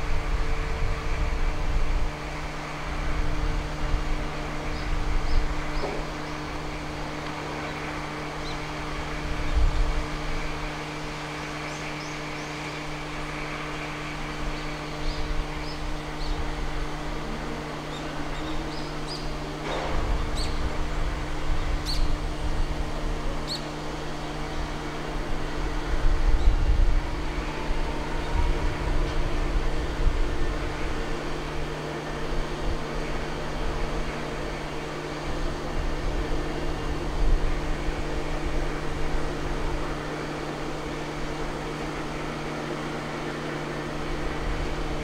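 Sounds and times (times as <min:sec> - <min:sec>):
shipyard machinery hum: 0:00.0 - 0:45.0.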